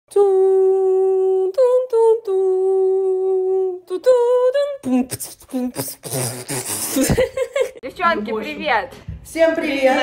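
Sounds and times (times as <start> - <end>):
person singing wordless tune: 0.1 - 6.7.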